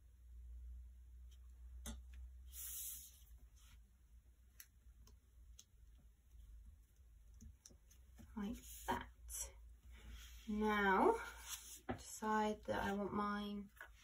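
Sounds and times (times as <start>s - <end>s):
paper rustling: 11.2s - 12.1s.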